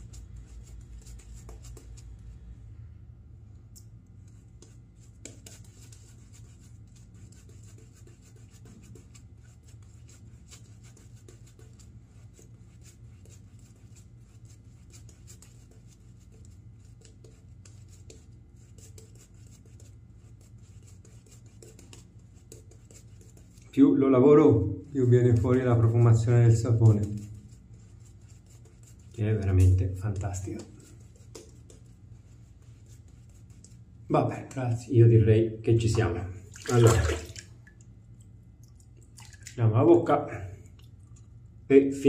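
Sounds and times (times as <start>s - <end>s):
shaving brush scratching on beard: 0.0s - 2.1s, 4.6s - 23.8s, 24.8s - 33.8s.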